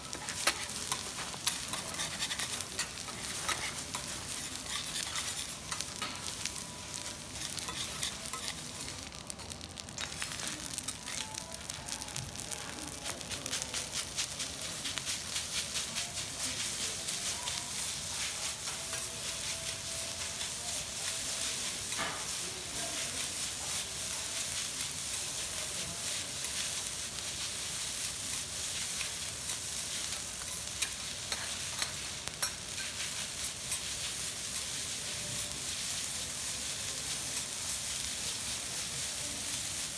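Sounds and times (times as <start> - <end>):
rice sizzling on a griddle: 0.0 - 39.9
metal spatula scraping and tapping: 0.1 - 8.9, 21.7 - 22.4, 28.3 - 34.7.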